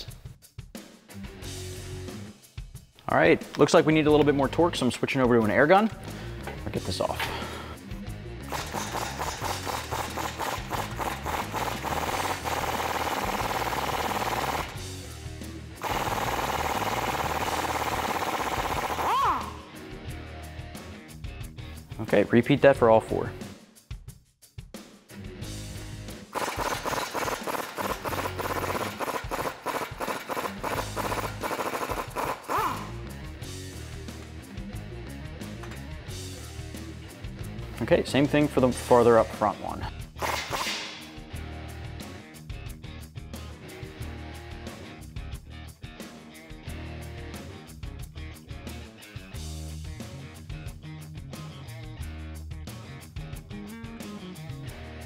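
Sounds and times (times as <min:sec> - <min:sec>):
pneumatic impact wrench rattling: 0:08.5 - 0:14.8, 0:15.8 - 0:19.6, 0:26.3 - 0:32.9, 0:40.2 - 0:41.1.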